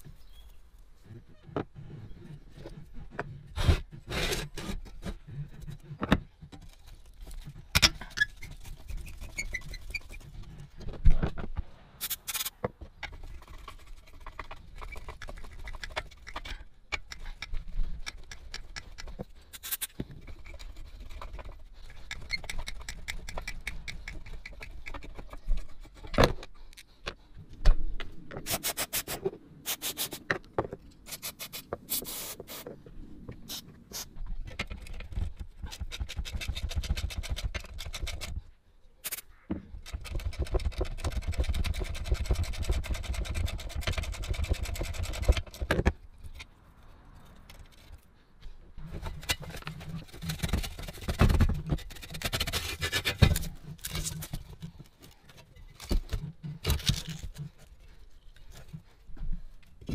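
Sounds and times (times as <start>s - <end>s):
hand tools scraping metal: 7.7s - 10.3s.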